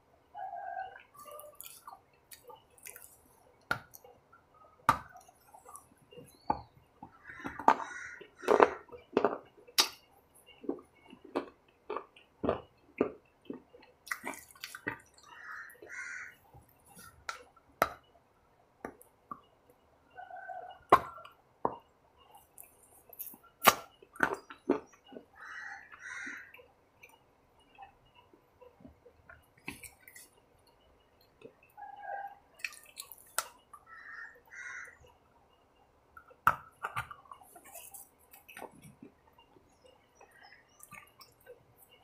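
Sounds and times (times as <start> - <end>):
person chewing a snack bar: 0.9 - 4.2, 5.0 - 6.4, 7.4 - 18.0, 22.3 - 30.4, 32.6 - 33.8, 36.2 - 42.0.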